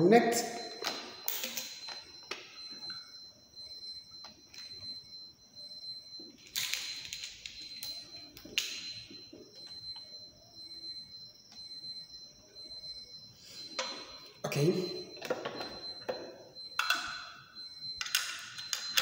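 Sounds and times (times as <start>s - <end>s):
clips clicking and wires rustling: 0.6s - 3.0s.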